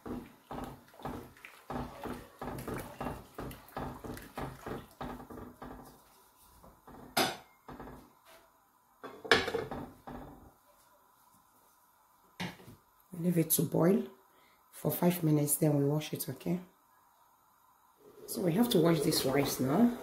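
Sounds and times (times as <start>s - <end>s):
wooden spoon stirring in pot: 0.0s - 7.2s, 18.0s - 20.0s.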